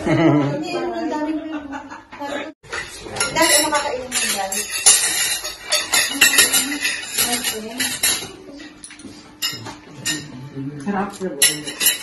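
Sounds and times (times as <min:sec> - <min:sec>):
cutlery clinking on plates: 0:02.7 - 0:12.0.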